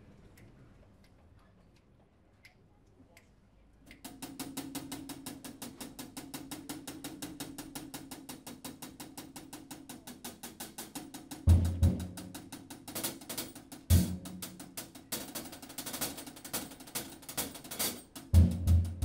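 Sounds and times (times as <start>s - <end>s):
faint ticks: 0.3s - 4.3s
fast drum tapping: 3.9s - 19.0s.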